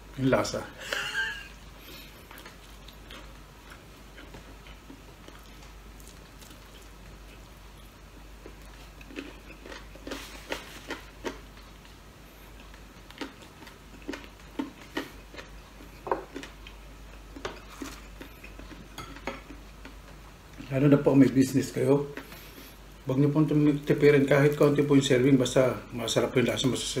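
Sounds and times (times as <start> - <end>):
person chewing food: 0.9 - 20.7, 22.1 - 23.0.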